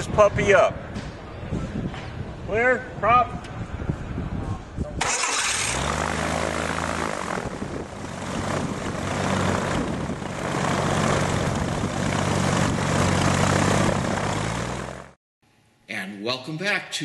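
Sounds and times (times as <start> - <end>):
aircraft engine with propeller running: 5.0 - 15.2.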